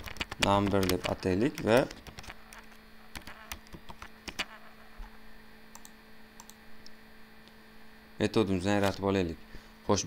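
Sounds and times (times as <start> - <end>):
computer keyboard typing: 0.0 - 4.7, 5.7 - 6.6
low electrical hum: 0.0 - 10.0.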